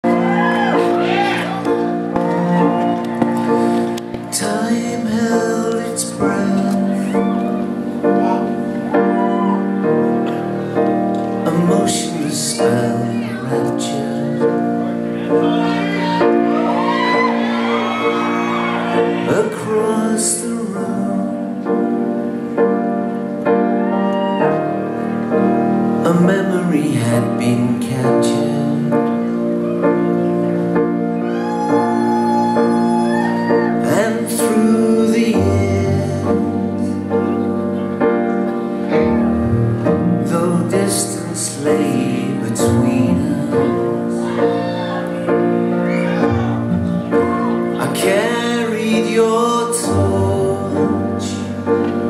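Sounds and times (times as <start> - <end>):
audience cheering and whistling: 0.0 - 4.2, 6.9 - 10.0, 15.2 - 19.7, 23.7 - 25.0, 31.0 - 34.1, 44.1 - 48.3
piano: 0.0 - 52.0
strings playing chords: 20.8 - 52.0.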